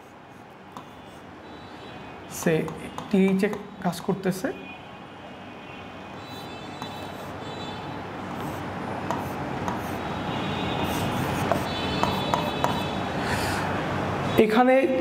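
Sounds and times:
marker tapping and scratching: 0.0 - 1.2, 2.4 - 3.7, 6.3 - 7.4, 8.3 - 10.0, 10.8 - 13.0.

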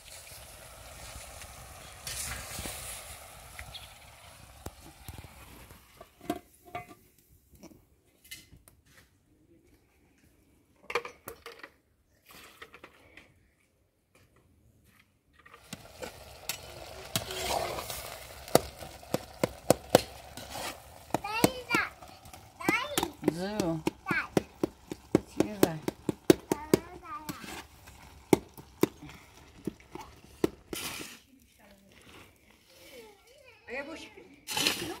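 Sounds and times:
sizzling: 0.0 - 6.7, 15.4 - 35.0.

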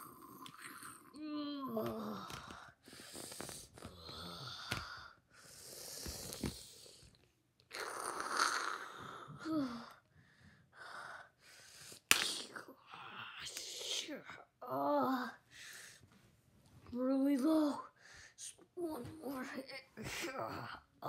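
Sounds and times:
child grunting: 0.0 - 2.5, 7.7 - 10.0.

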